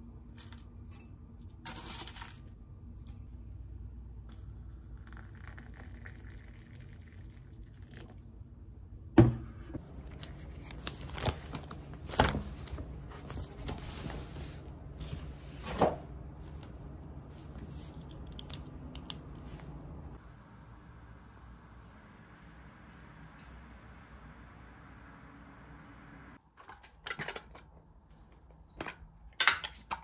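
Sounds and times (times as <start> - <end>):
rustling and crinkling: 9.8 - 16.7.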